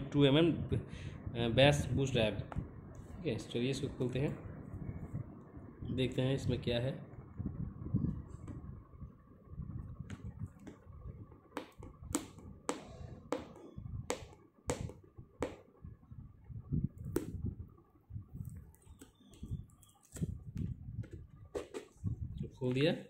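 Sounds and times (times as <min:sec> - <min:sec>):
low handling rumble: 0:00.6 - 0:14.1.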